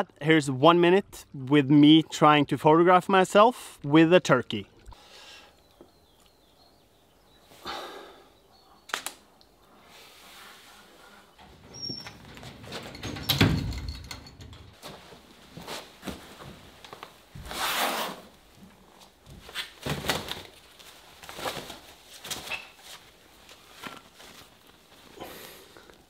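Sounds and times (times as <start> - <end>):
rustling and shuffling: 9.7 - 26.0.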